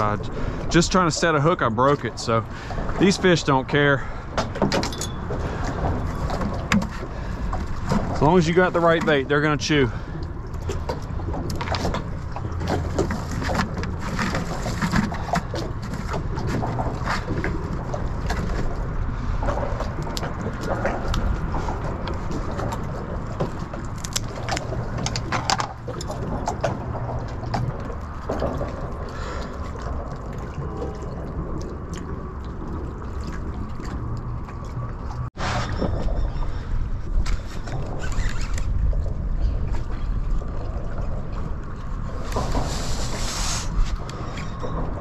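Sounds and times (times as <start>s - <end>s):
steady low rumble: 0.0s - 45.0s
fishing tackle clicks and knocks: 4.4s - 8.2s, 19.5s - 28.8s.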